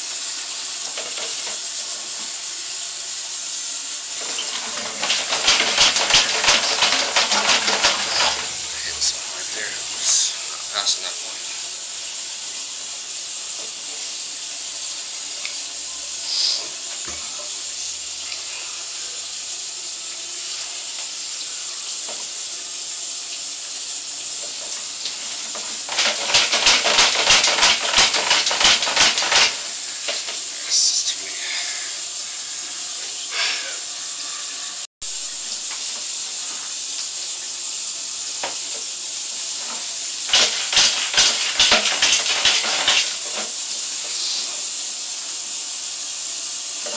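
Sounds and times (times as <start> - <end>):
steady hiss: 0.0 - 46.9
rapid clicking and rattling: 4.2 - 9.1, 24.6 - 30.4, 39.6 - 43.6.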